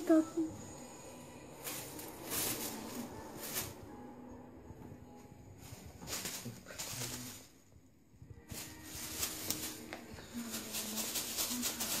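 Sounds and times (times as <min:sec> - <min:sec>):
plastic bag crinkling: 0:01.6 - 0:03.9, 0:05.6 - 0:07.6, 0:08.4 - 0:12.0.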